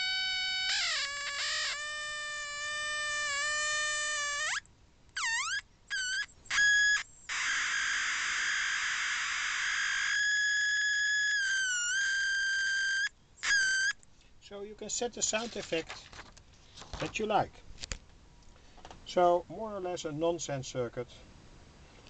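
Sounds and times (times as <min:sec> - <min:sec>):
buzzy whistle-like electronic squeal: 0:00.0 - 0:04.6, 0:05.2 - 0:14.0.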